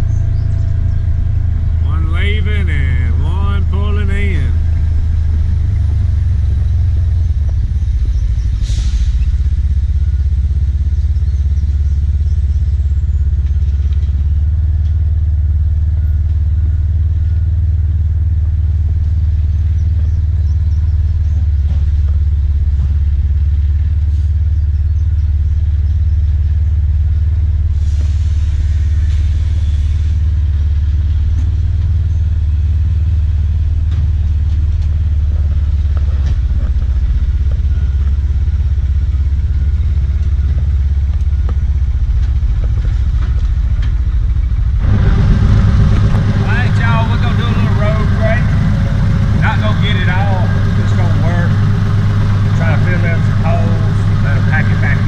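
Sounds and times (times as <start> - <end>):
utility vehicle engine rumbling: 0.0 - 55.0.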